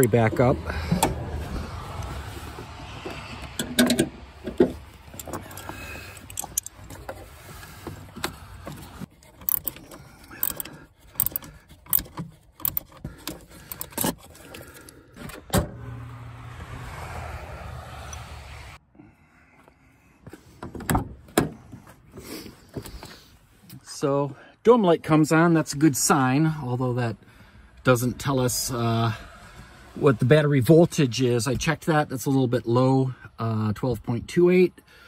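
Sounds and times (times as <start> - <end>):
wrench clicking on metal: 9.4 - 14.1.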